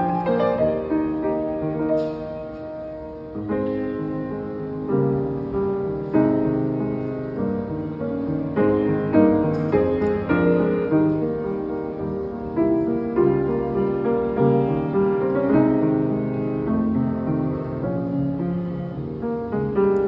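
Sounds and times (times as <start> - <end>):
grand piano playing: 0.0 - 20.0.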